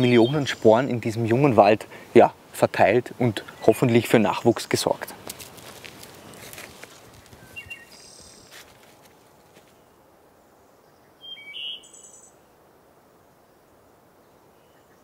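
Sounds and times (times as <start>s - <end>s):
faint steady hiss: 0.0s - 15.0s
songbirds chirping: 0.0s - 15.0s
soft rustles: 5.1s - 9.8s.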